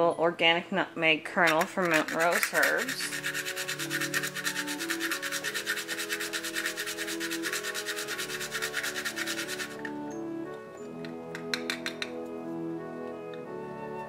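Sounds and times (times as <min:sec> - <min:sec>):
soft background music: 0:00.0 - 0:14.0
nutmeg grinder rasping: 0:01.4 - 0:10.0.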